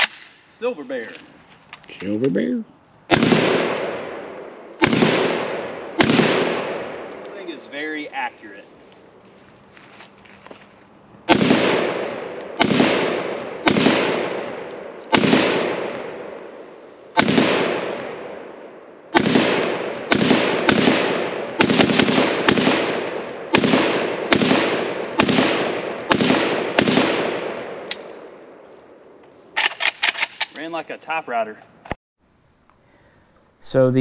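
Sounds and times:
rifle shots echoing: 0.0s - 0.5s, 3.1s - 8.3s, 11.2s - 30.5s.

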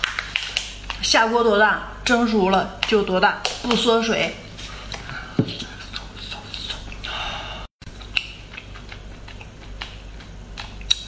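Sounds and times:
wet chewing sounds: 4.6s - 7.2s, 7.8s - 11.0s.

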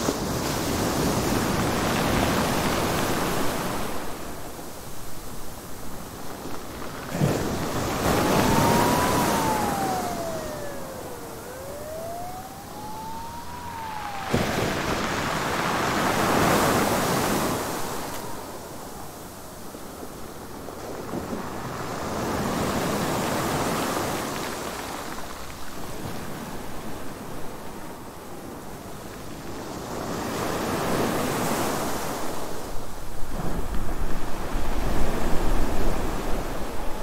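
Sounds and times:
thin wailing tone: 7.9s - 19.6s
rushing noise: 8.0s - 19.3s.

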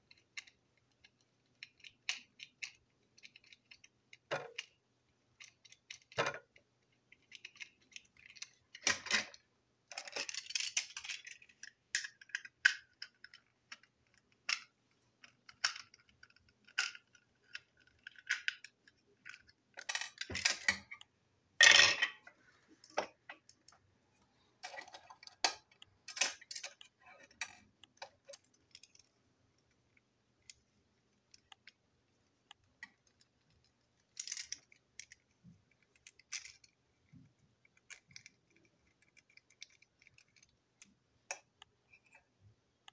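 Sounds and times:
small parts clattering on table: 7.3s - 21.0s, 21.6s - 23.8s, 24.6s - 29.1s.

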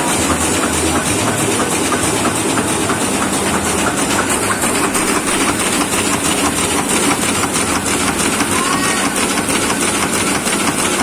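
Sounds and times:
printing press mechanical clatter: 0.0s - 11.0s.

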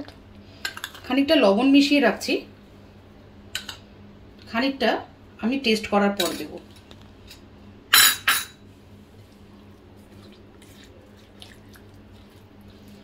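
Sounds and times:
soft wet stirring: 8.7s - 13.0s.

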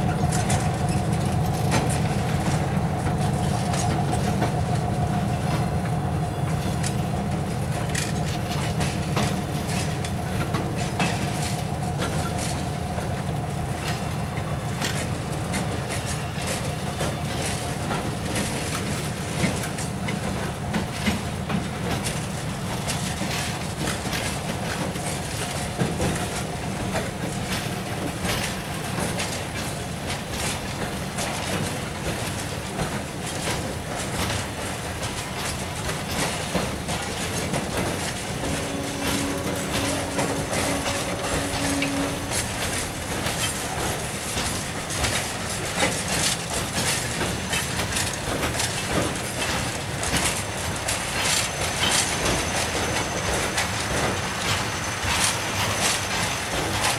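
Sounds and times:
freight train rumbling: 0.0s - 56.9s
wheels clicking over rail joints: 0.0s - 56.9s.

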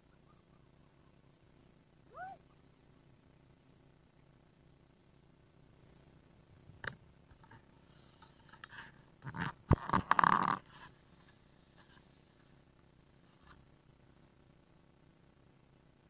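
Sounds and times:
bird chirps: 0.0s - 2.8s, 3.6s - 4.0s, 5.6s - 6.4s, 9.3s - 10.2s, 13.8s - 14.4s.

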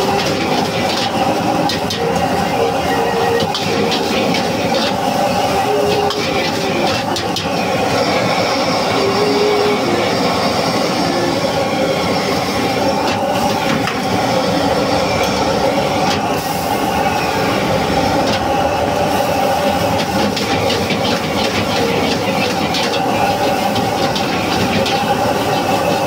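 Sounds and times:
ladle scraping and knocking wok: 0.0s - 8.1s, 18.2s - 26.0s
gas burner roaring: 0.0s - 26.0s.

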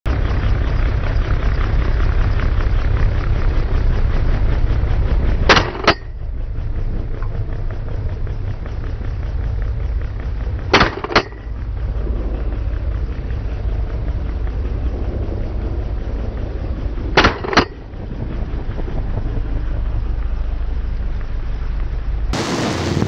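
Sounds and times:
helicopter rotor rumble: 0.0s - 23.0s
gunshots: 22.4s - 23.0s.

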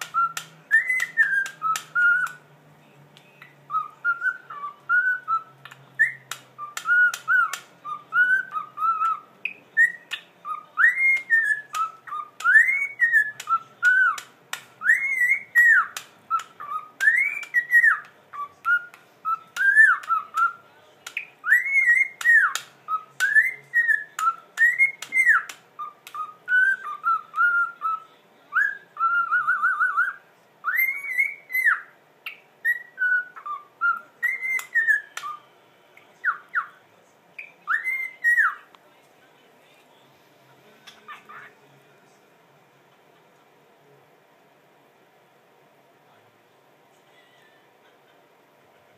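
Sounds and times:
cockatiel whistling a tune: 0.0s - 2.4s, 3.4s - 20.6s, 21.2s - 35.4s, 37.4s - 38.7s.

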